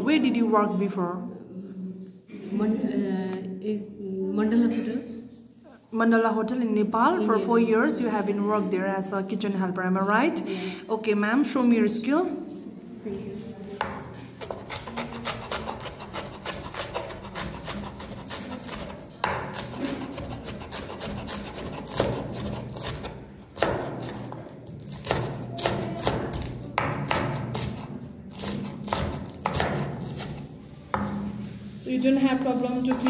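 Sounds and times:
knife shredding cabbage on board: 0:14.4 - 0:31.5.

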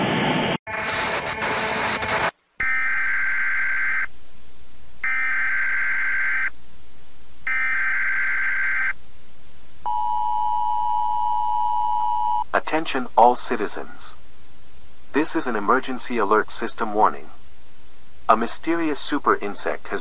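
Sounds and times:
data burst tones: 0:00.7 - 0:04.1, 0:05.0 - 0:06.5, 0:07.4 - 0:09.0
tv static: 0:00.7 - 0:09.9, 0:12.5 - 0:20.0.

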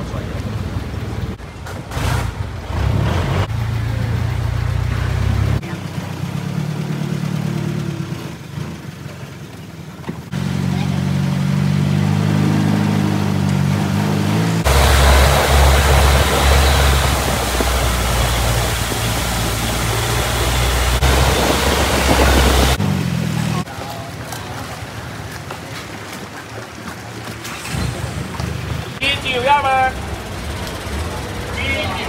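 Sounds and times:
boat engine running: 0:03.5 - 0:32.0
water spray rushing: 0:14.2 - 0:32.0.

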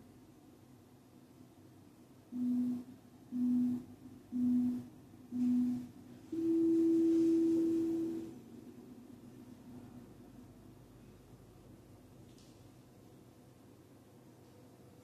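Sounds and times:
interval timer beeping: 0:02.3 - 0:08.3.

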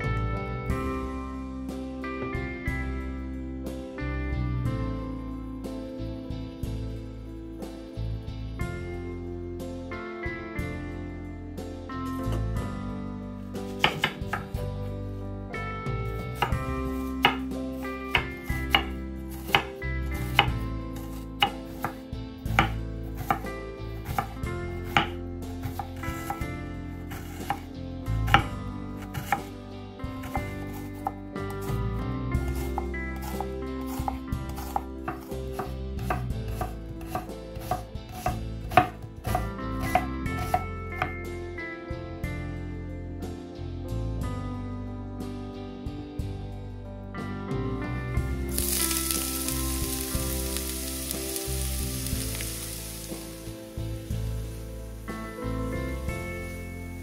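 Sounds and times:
soft background music: 0:00.0 - 0:57.0
knife chopping on cutting board: 0:13.8 - 0:14.6, 0:16.4 - 0:17.5, 0:18.1 - 0:26.4, 0:27.1 - 0:27.7, 0:28.3 - 0:29.5, 0:30.2 - 0:31.7, 0:32.5 - 0:41.1.

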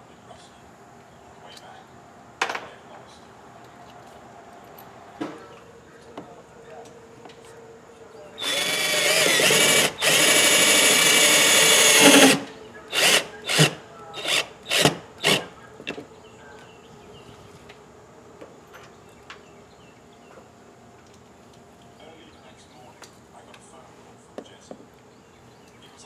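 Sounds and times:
power drill driving screw: 0:08.4 - 0:15.5.

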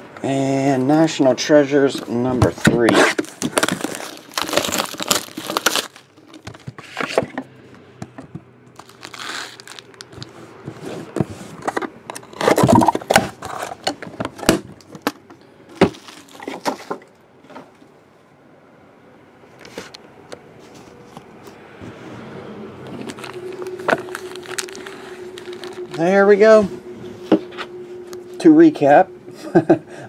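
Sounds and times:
box handling rustles and knocks: 0:02.3 - 0:07.5
plastic wrap crinkling and tearing: 0:02.8 - 0:06.6, 0:08.8 - 0:10.5, 0:15.8 - 0:17.0, 0:23.0 - 0:26.3.

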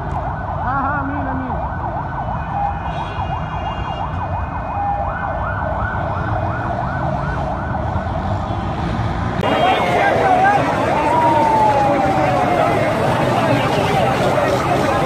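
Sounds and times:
siren whooping: 0:00.0 - 0:08.2, 0:09.4 - 0:15.0
yelp sirens sweeping: 0:00.0 - 0:08.8, 0:09.4 - 0:15.0
low street rumble: 0:05.0 - 0:15.0.

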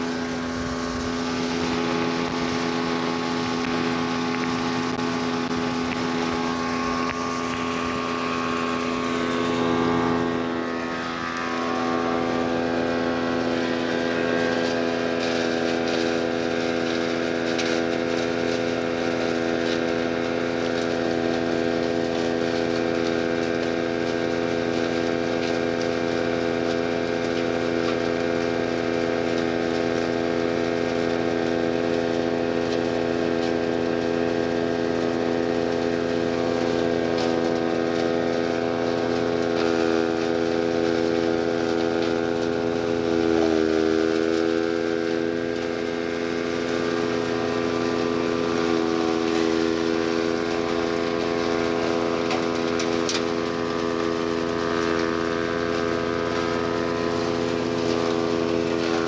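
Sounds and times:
charcoal clicking and crackling: 0:00.0 - 0:11.5, 0:12.2 - 0:59.0
wood chipper engine running: 0:00.0 - 0:59.0.

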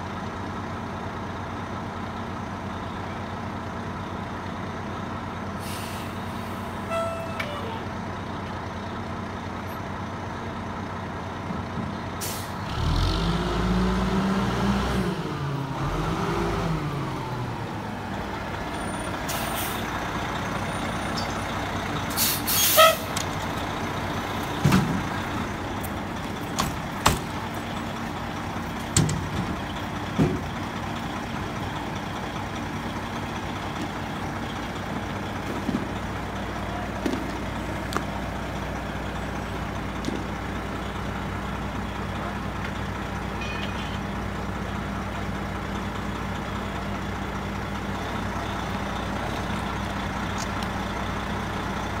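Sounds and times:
diesel engine running: 0:00.0 - 0:52.0
sharp knocks and clanks: 0:24.6 - 0:25.1, 0:26.5 - 0:27.4, 0:28.8 - 0:30.6.

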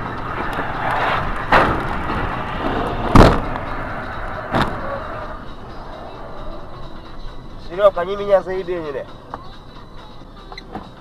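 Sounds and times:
road and engine noise: 0:00.0 - 0:11.0
sharp thuds: 0:00.9 - 0:03.8, 0:04.5 - 0:05.0.

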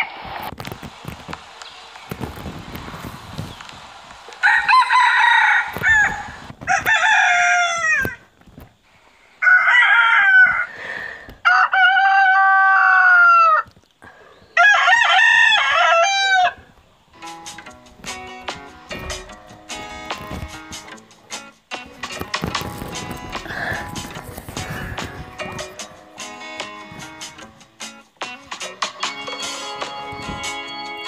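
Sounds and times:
roosters crowing: 0:04.3 - 0:08.4, 0:09.3 - 0:21.2.

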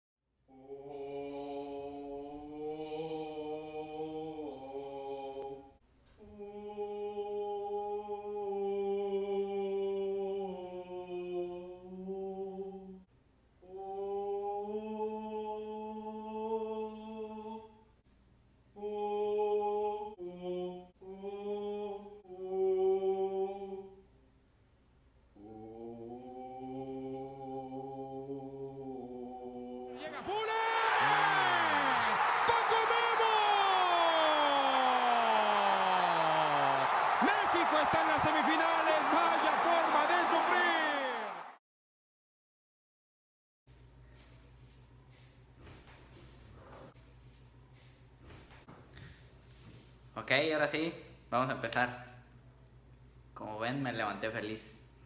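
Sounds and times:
voices chanting a cappella: 0:00.5 - 0:17.9, 0:18.8 - 0:24.0, 0:25.4 - 0:41.6.

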